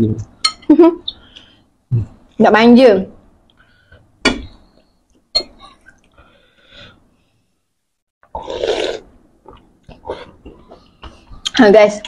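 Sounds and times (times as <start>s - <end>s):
slurping noodles and broth: 8.3s - 9.1s.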